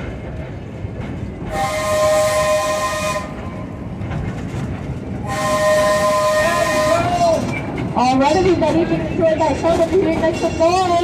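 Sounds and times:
train running rumble: 0:00.0 - 0:11.0
locomotive horn blasts: 0:01.5 - 0:03.6, 0:05.2 - 0:07.4.

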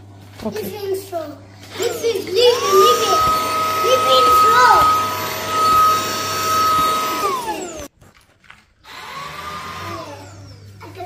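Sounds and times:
vacuum cleaner motor whine: 0:01.7 - 0:07.9, 0:08.9 - 0:10.8.

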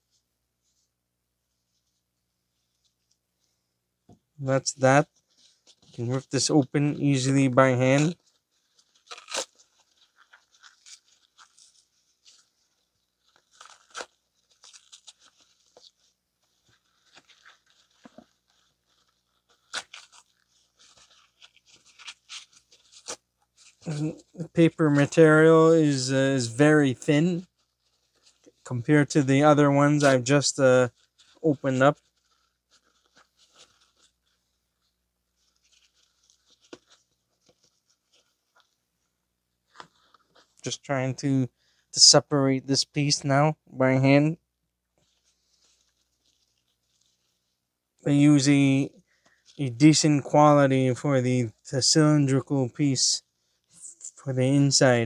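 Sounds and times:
paper filter tearing: 0:05.5 - 0:26.1.

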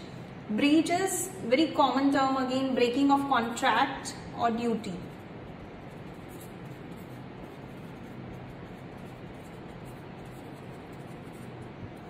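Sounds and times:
marker scratching on paper: 0:04.9 - 0:12.0.

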